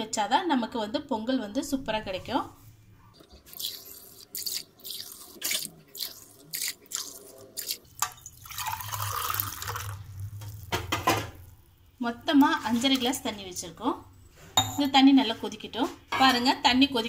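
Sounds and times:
water pouring into pot: 3.5s - 11.6s
water splashing into pot: 3.5s - 11.6s.

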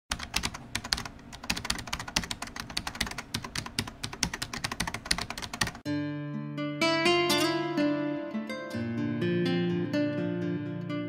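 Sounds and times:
rapid keyboard typing: 0.1s - 5.8s
plucked guitar music: 5.9s - 11.0s.

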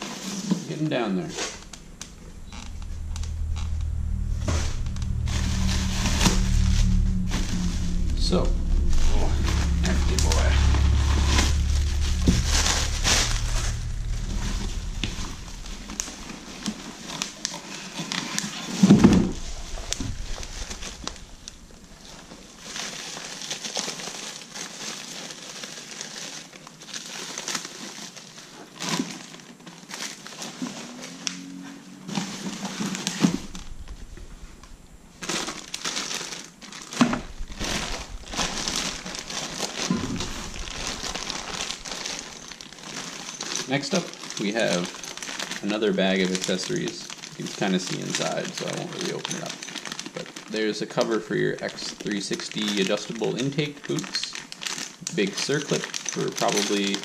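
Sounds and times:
plastic bags crinkling: 21.9s - 31.0s, 35.2s - 57.0s.

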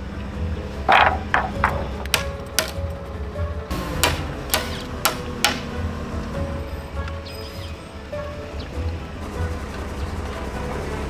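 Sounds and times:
background music: 0.0s - 11.0s
hammer blows on wood: 0.9s - 2.8s, 3.9s - 5.7s.

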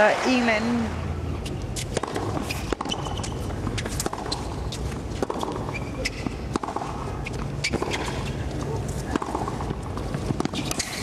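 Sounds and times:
shoes squeaking on court: 1.4s - 11.0s
racket strings hitting ball: 1.8s - 8.3s, 9.1s - 11.0s.

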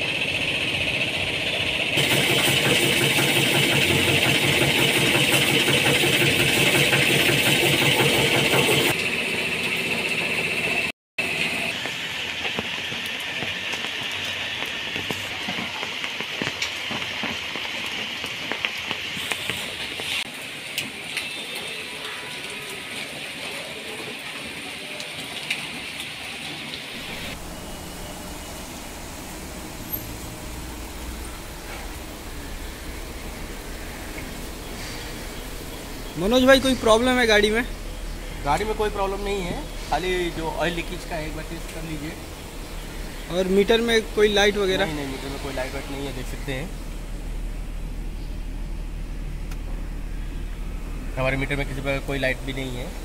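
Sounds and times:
water hose spraying: 0.0s - 10.5s, 11.2s - 53.0s
water spray hissing: 26.5s - 48.8s
car engine idling: 27.0s - 53.0s.

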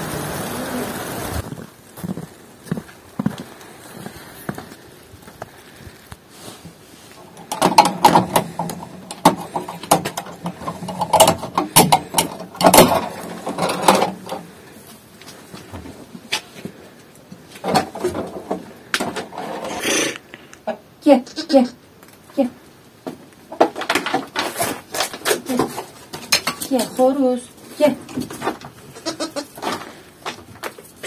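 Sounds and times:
wooden door rattling and knocking: 7.5s - 14.2s.

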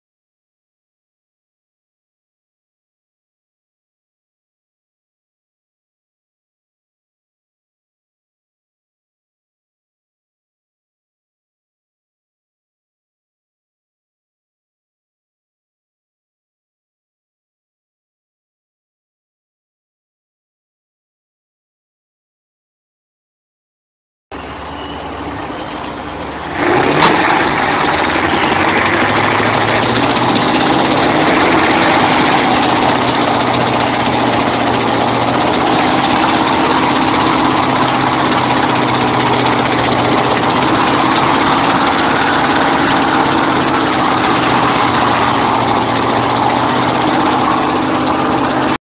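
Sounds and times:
heavy diesel tractor engine revving: 24.3s - 48.8s.

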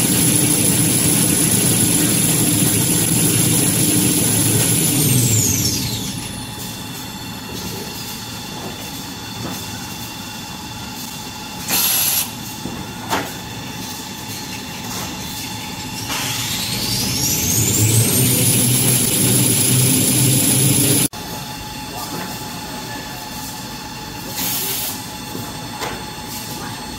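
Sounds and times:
machine rumble: 0.0s - 8.7s, 14.8s - 21.2s
high machine whine: 0.0s - 24.0s.

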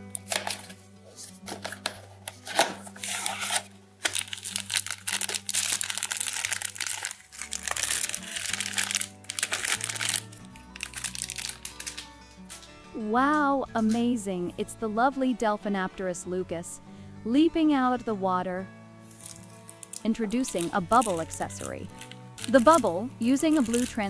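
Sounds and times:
background music: 0.0s - 24.0s
foil bag crinkling: 1.4s - 12.1s, 19.1s - 24.0s.

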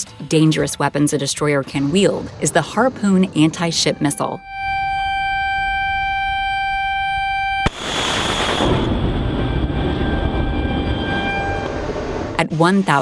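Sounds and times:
steady warning tone: 1.8s - 13.0s
missile booster crack and blast: 7.6s - 10.5s.

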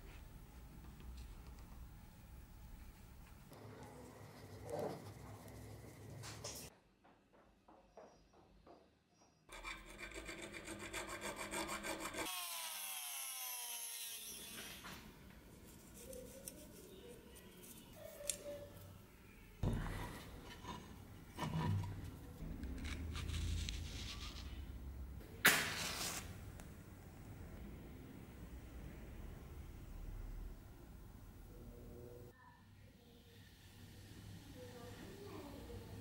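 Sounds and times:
match being struck: 25.4s - 26.7s.

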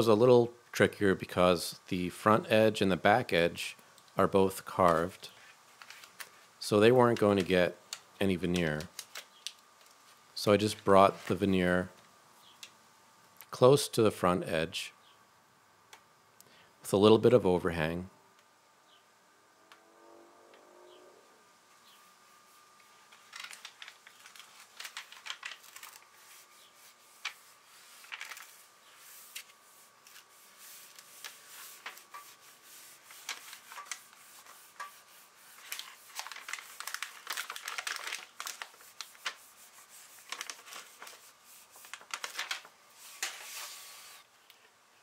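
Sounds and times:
wood veneer crackling and rustling: 21.9s - 43.9s
hands rubbing veneer on wood: 26.2s - 36.7s.

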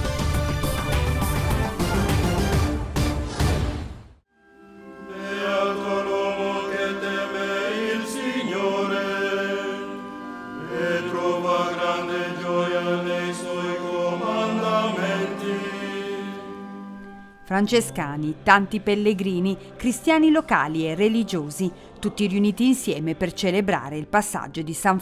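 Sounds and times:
group chanting long held notes: 5.0s - 17.0s.

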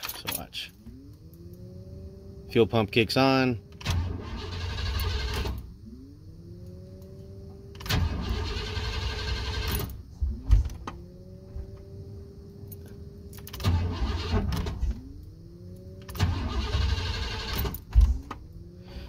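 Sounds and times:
starter cranking engine: 3.7s - 5.6s, 7.8s - 9.9s, 13.5s - 14.8s, 16.0s - 17.8s
electric fuel pump whine: 3.7s - 12.1s.

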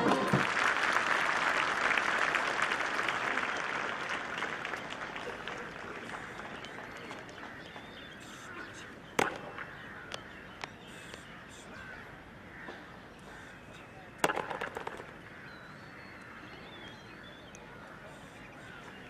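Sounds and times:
crows cawing: 7.4s - 10.4s, 11.0s - 13.6s, 15.1s - 16.6s.

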